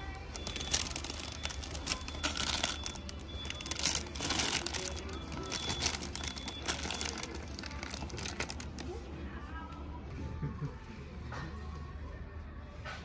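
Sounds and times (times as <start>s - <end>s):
faint shop background music: 0.0s - 13.0s
plastic bags crinkling: 0.2s - 9.0s.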